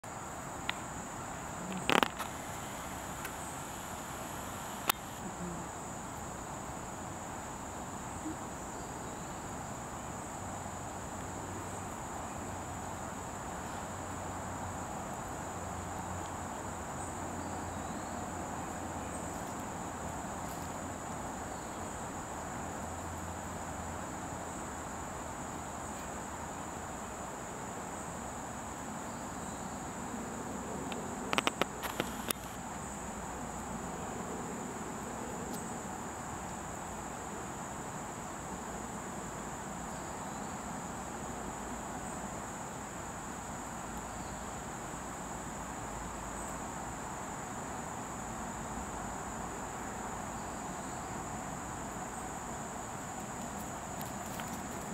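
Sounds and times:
insects singing drone: 0.0 - 54.9.

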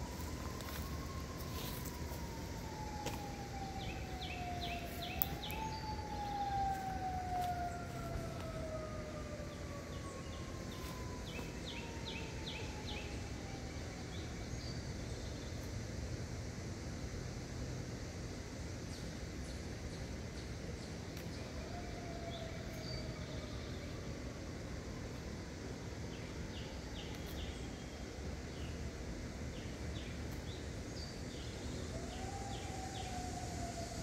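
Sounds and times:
siren winding down: 0.0 - 14.3, 31.9 - 34.0
higher siren tone: 0.0 - 14.4, 31.9 - 34.0.

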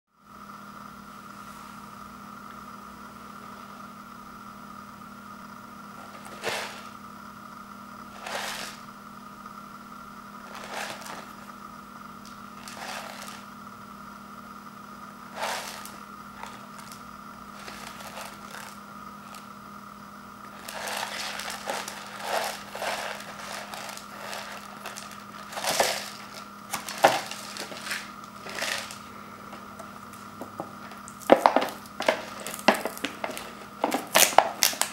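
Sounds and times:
steady background hum: 0.2 - 34.9
packaging crinkling and scraping: 6.0 - 7.0, 8.1 - 8.8, 10.4 - 11.4, 12.2 - 13.5, 15.3 - 19.5, 20.4 - 34.9.

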